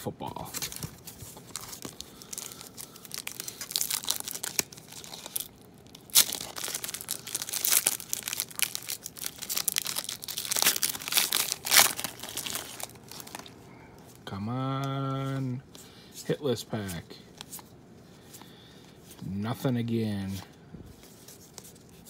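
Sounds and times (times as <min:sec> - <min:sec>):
foil wrapper crinkling and tearing: 0:00.6 - 0:13.6.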